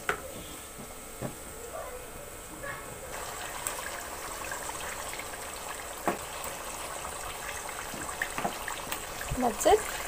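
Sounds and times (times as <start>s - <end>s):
chicken sizzling in hot oil: 3.1s - 10.0s.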